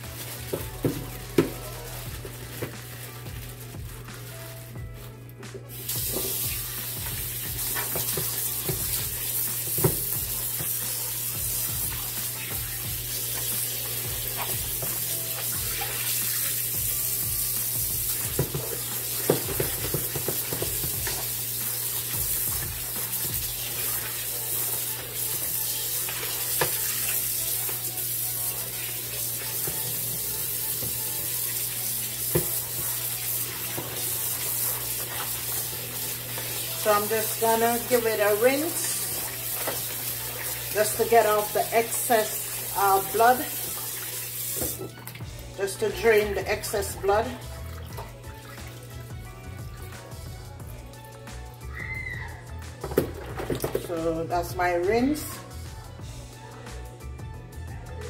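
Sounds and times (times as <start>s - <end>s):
tap water running: 0.0s - 55.3s
water splashing: 5.8s - 17.4s, 18.0s - 45.3s.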